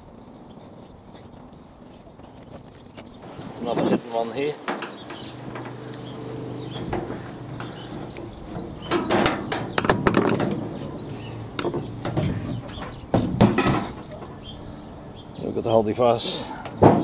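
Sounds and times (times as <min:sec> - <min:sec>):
thin metal scraping and rattling: 0:04.6 - 0:14.2.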